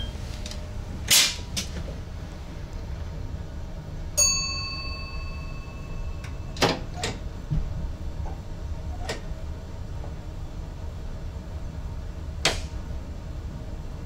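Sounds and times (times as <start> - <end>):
train running rumble: 0.0 - 14.0
bell-like chime: 4.2 - 6.6.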